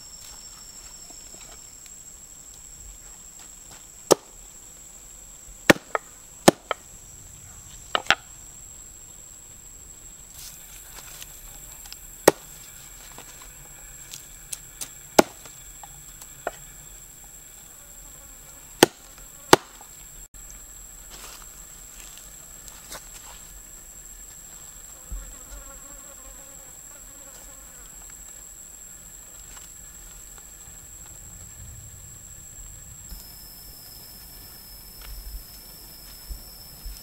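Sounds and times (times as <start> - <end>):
high insect drone: 0.0 - 37.0
cleaver chopping on wooden board: 18.8 - 19.8.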